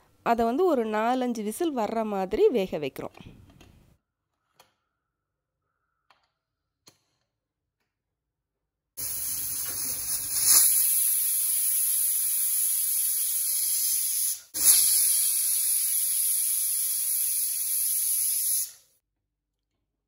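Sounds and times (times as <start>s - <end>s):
pressure cooker steam hissing: 9.0s - 18.9s.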